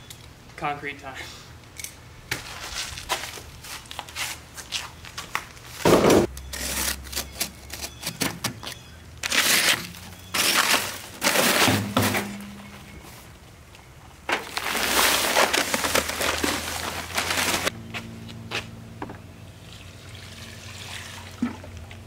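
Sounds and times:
paper bags crinkling and tearing: 0:09.2 - 0:12.1, 0:14.4 - 0:17.7.

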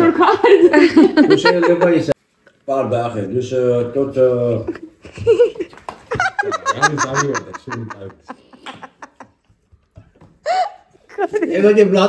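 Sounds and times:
people laughing: 0:00.0 - 0:02.2, 0:04.6 - 0:09.5.

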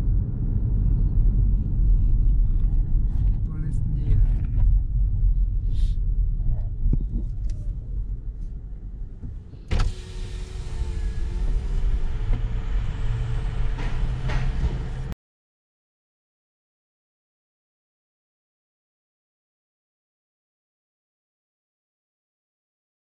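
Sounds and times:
car engine and road rumble: 0:00.0 - 0:15.2
power window motor whine: 0:09.7 - 0:15.1.

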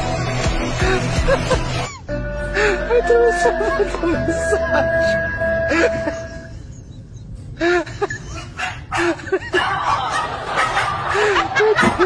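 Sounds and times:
human laughter: 0:05.7 - 0:12.0.

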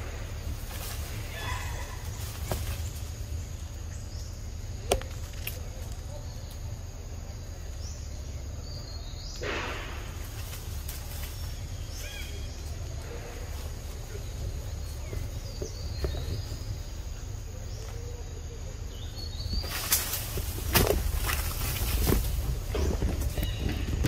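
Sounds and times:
low rumble of wind: 0:00.0 - 0:24.0
rustling leaves: 0:00.0 - 0:24.0
branch snapping: 0:00.6 - 0:03.2, 0:04.8 - 0:06.7, 0:19.6 - 0:23.6.

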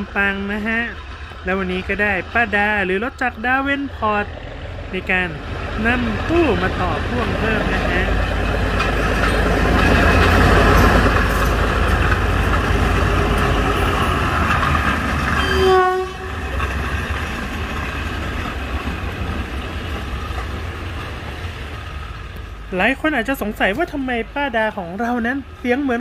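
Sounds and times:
diesel locomotive engine running: 0:00.0 - 0:26.0
locomotive horn toot: 0:15.4 - 0:16.4.

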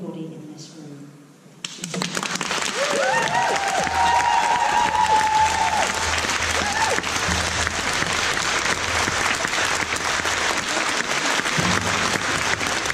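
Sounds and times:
audience applauding: 0:01.7 - 0:12.9.

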